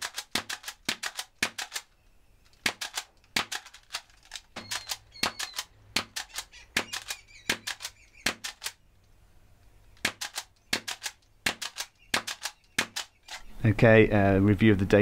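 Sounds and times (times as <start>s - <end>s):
toy blaster clacks and pops: 0.0s - 1.9s, 2.5s - 8.8s, 10.0s - 13.4s.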